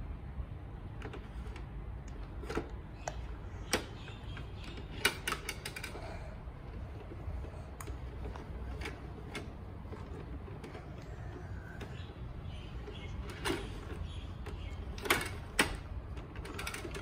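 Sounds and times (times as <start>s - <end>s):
toy truck plastic clicks and clacks: 1.0s - 12.2s, 12.8s - 17.0s.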